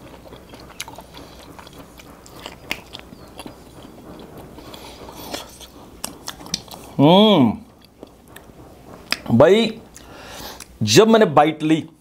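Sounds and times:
man chewing with wet clicks: 0:00.0 - 0:07.0, 0:07.6 - 0:10.8
lip smacks: 0:00.2 - 0:07.0, 0:09.9 - 0:10.8.

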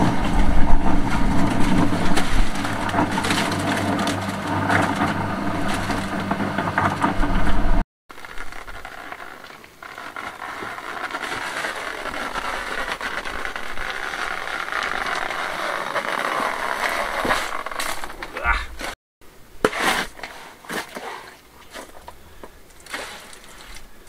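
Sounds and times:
cement mixer rattling: 0:00.0 - 0:19.0, 0:21.7 - 0:23.9.

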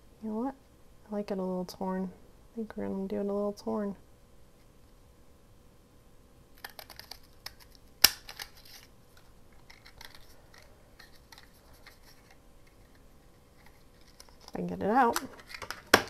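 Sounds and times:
paper rustling: 0:06.6 - 0:16.0.

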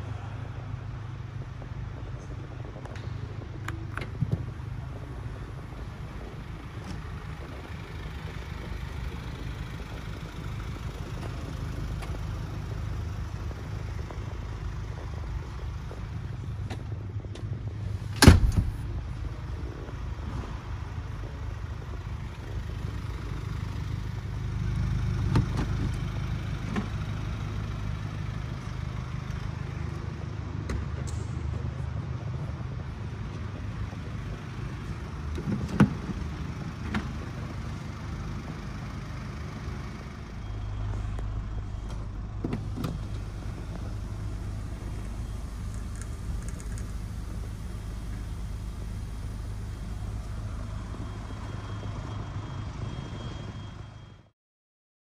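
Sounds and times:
steady low rumble: 0:00.0 - 0:53.7
van door shutting: 0:18.1 - 0:18.9, 0:41.8 - 0:43.6.

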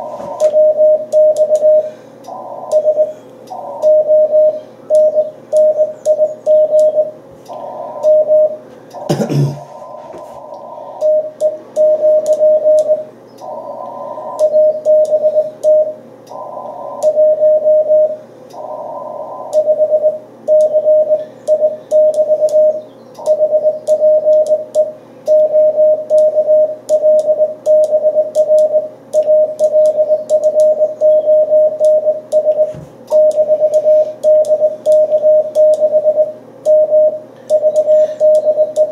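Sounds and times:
radio band hiss: 0:00.0 - 0:00.7, 0:01.6 - 0:05.0, 0:07.3 - 0:11.8, 0:13.0 - 0:14.7, 0:16.3 - 0:17.4
morse code tones: 0:00.0 - 0:38.9.

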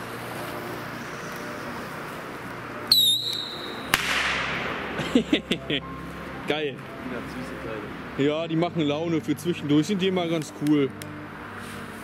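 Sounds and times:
rocket whistle: 0:02.9 - 0:04.0
firework bang with echo: 0:03.9 - 0:05.2.

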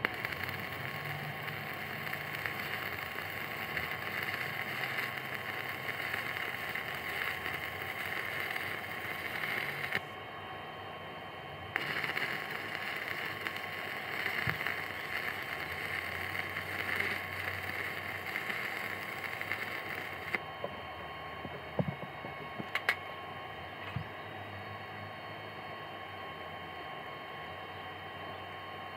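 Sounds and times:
welding arc hissing: 0:00.0 - 0:10.2, 0:11.7 - 0:20.4.

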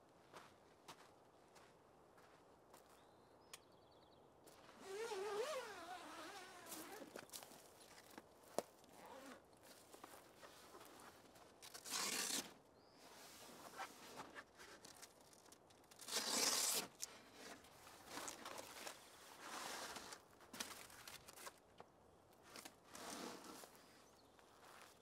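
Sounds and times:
fabric cover ripping open: 0:11.6 - 0:12.5, 0:15.9 - 0:17.0.

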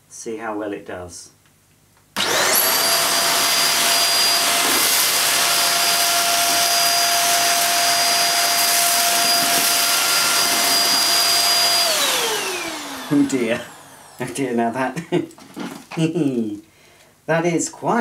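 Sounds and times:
stick vacuum motor whine: 0:02.2 - 0:14.4
vacuum rushing noise: 0:02.2 - 0:14.5.

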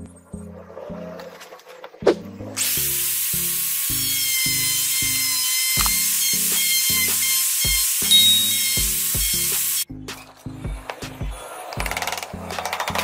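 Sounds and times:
electric router whining: 0:02.6 - 0:09.9.

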